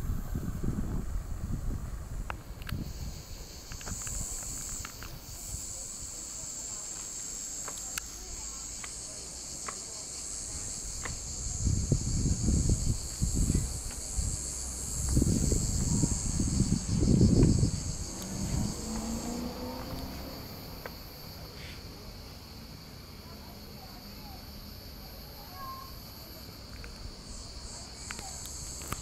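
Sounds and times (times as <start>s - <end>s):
wind buffeting microphone: 0.0s - 6.2s, 10.4s - 20.8s
cicadas chirring: 0.0s - 29.0s.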